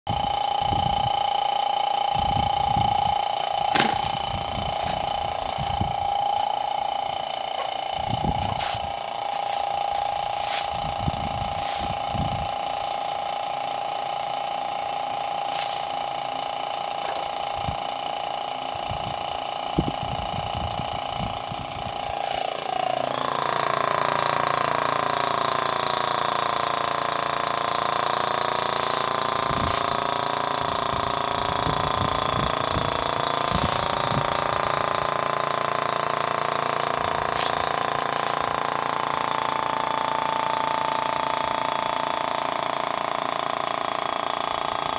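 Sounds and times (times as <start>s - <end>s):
vacuum pump running: 0.1s - 44.9s.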